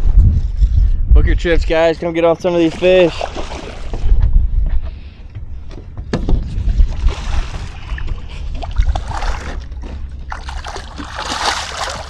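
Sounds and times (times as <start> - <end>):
wind rumble on microphone: 0.0 - 12.0
fish splashing in water: 6.9 - 12.0.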